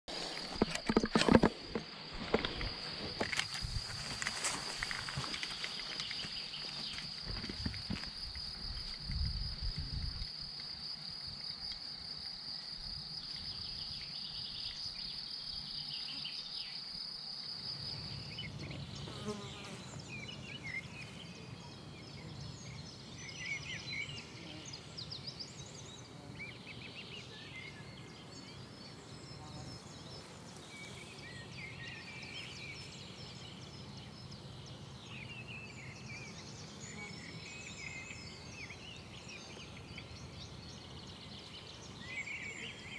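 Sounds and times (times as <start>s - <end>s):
high insect trill: 0.1s - 42.9s
birds chirping: 17.6s - 42.9s.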